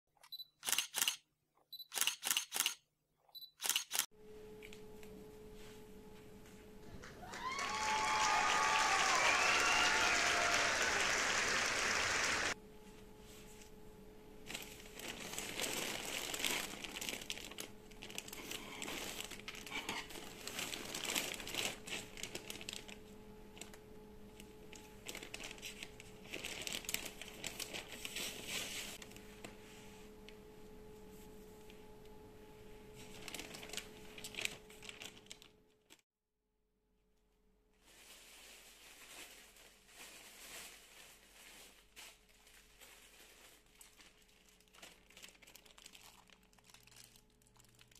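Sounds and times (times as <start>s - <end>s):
plastic bag crinkling: 14.4s - 23.8s, 24.5s - 29.0s, 33.0s - 36.0s, 37.8s - 47.9s.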